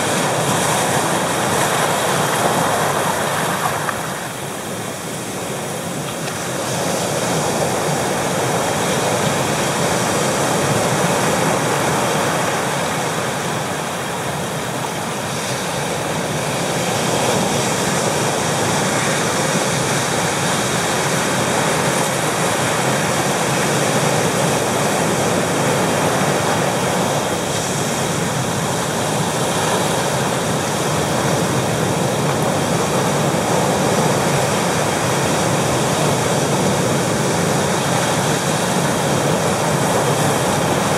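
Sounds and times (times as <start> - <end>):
surf washing over rocks: 0.0 - 40.9.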